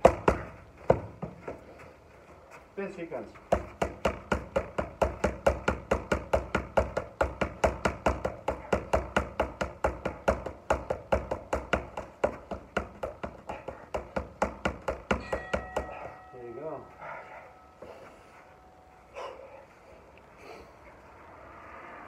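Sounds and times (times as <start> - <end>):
punches smacking focus mitts: 3.5 - 16.2.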